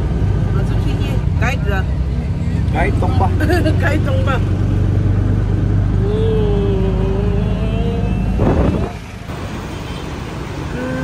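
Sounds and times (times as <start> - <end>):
auto-rickshaw engine droning: 0.0 - 11.0
street traffic noise: 0.0 - 11.0.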